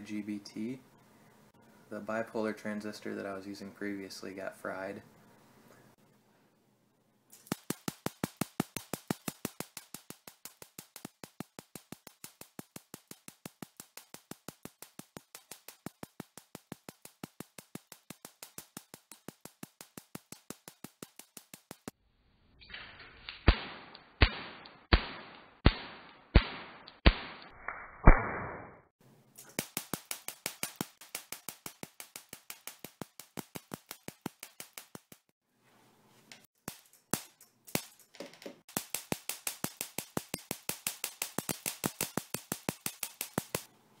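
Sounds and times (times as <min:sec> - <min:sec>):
tesla coil sparking snaps: 0:22.6 - 0:28.7, 0:29.4 - 0:35.3, 0:38.7 - 0:43.7.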